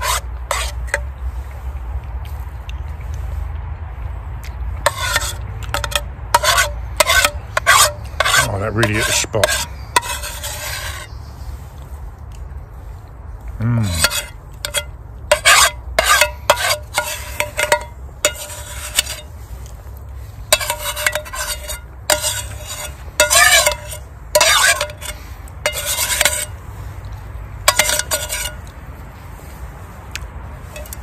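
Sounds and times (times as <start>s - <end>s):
metal spoon scraping a pan: 0.0s - 1.2s, 4.8s - 11.2s, 13.8s - 26.9s, 27.6s - 28.8s, 30.6s - 31.0s.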